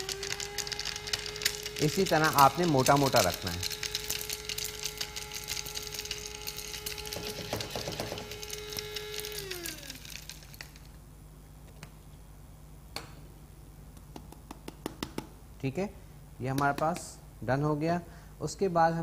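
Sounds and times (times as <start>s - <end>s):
electric spice grinder whining: 0.0s - 10.9s
spice rattling in grinder: 0.0s - 11.0s.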